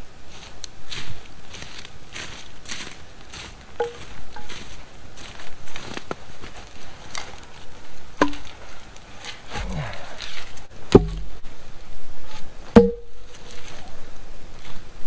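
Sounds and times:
campfire crackling: 0.0 - 15.0
wood knocking on wood: 10.9 - 11.4, 12.8 - 13.1.

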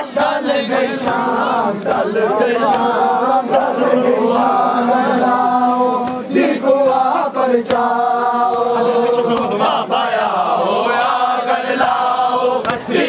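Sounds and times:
men chanting in chorus: 0.0 - 13.0
sharp knocks: 12.6 - 12.9.

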